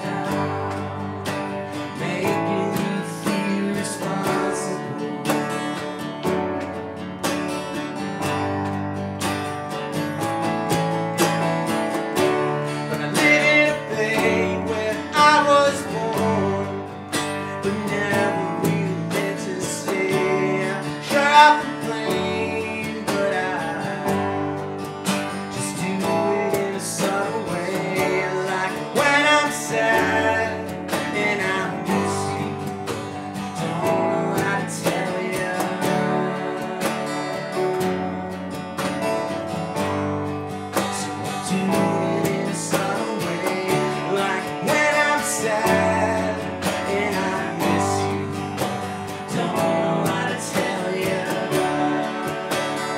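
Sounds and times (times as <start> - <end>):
men singing: 0.0 - 6.1, 12.8 - 24.5, 25.5 - 37.7, 40.8 - 52.9
electric bass: 0.0 - 52.9
stage keyboard: 0.0 - 52.9
strummed acoustic guitar: 0.0 - 52.9
box drum: 10.2 - 52.9.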